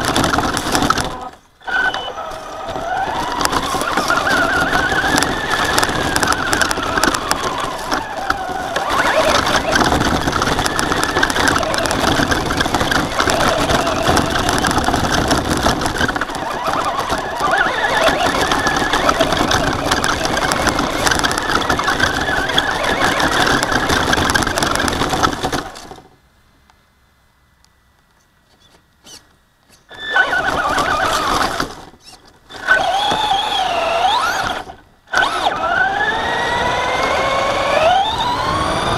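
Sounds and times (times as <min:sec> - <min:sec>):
rc truck motor whining: 0:00.0 - 0:26.0, 0:28.6 - 0:38.9
drivetrain and tyres rattling: 0:00.0 - 0:26.3, 0:28.1 - 0:38.9.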